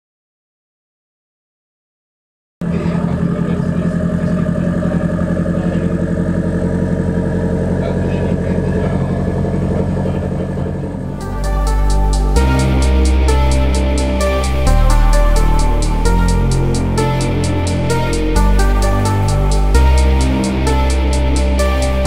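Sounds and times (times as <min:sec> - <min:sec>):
car engine idling: 0:02.6 - 0:22.0
electronic music with beat: 0:11.1 - 0:22.0.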